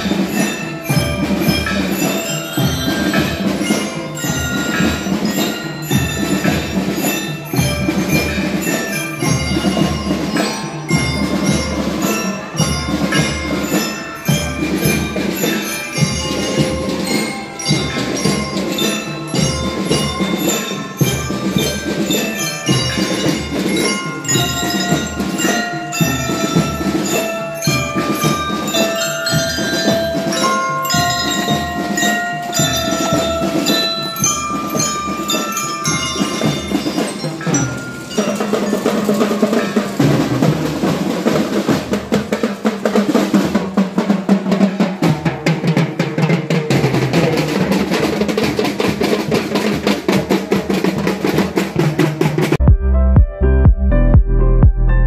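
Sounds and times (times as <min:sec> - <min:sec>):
bell lyre melody: 0:00.0 - 0:42.3
marching drums: 0:00.0 - 0:53.8.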